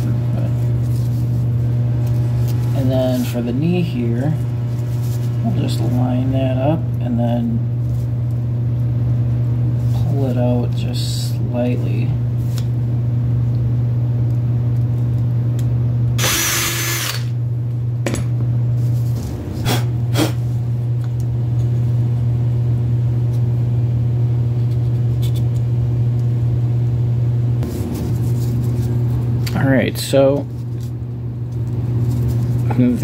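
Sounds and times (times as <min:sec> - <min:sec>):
low machine hum: 0:00.0 - 0:33.0
scraping rustle: 0:27.6 - 0:29.2.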